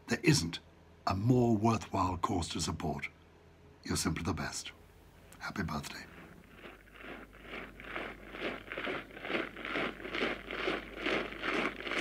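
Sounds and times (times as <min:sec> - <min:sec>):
rhythmic crunching: 0:06.0 - 0:12.0.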